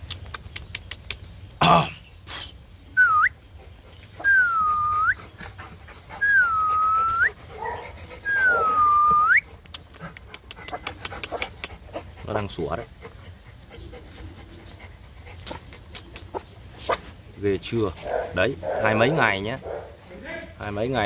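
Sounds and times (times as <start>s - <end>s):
puppy whining: 6.2s - 11.6s
puppy yapping: 7.6s - 9.4s.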